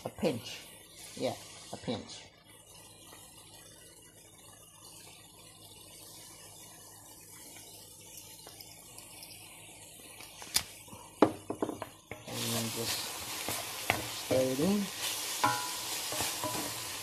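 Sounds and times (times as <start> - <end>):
food sizzling in a pan: 0.0 - 17.0.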